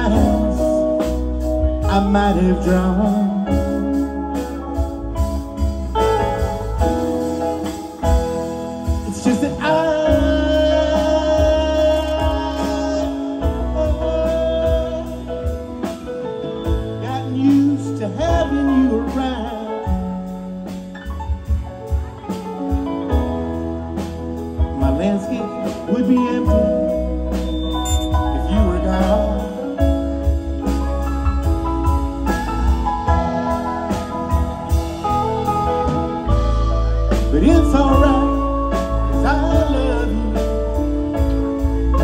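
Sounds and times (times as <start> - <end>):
bass guitar: 0.0 - 42.0
drums: 0.0 - 42.0
electric guitars: 0.0 - 42.0
gliding lead guitar notes: 0.0 - 42.0
keyboards: 0.0 - 42.0
steel guitar: 0.0 - 42.0.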